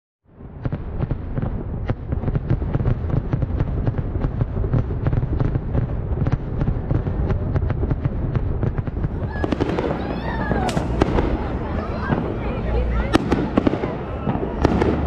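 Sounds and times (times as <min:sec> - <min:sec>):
fireworks popping and crackling: 0:00.3 - 0:15.0
low rumble: 0:06.7 - 0:15.0.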